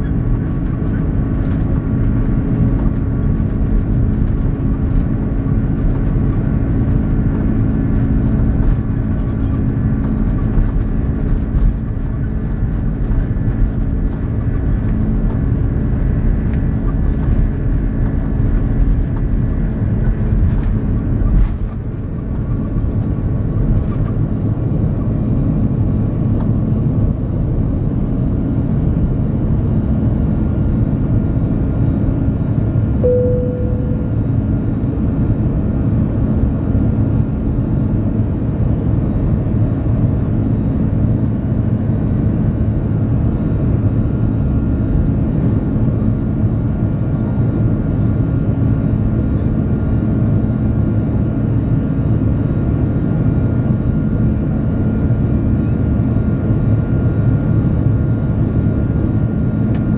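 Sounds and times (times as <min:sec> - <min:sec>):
runway rumble: 0:00.0 - 0:36.4
jet engines at takeoff thrust: 0:00.0 - 0:59.9.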